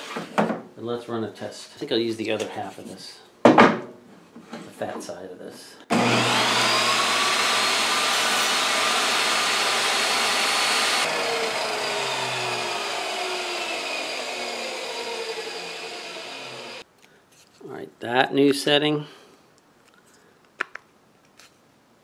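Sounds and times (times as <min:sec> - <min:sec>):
table saw motor whining: 0:05.9 - 0:16.8.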